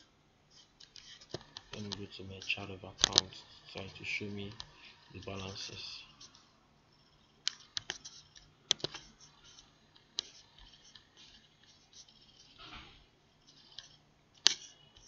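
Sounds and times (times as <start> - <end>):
mouse and keyboard clicks: 0.6 - 3.9, 7.4 - 12.8, 13.5 - 15.0.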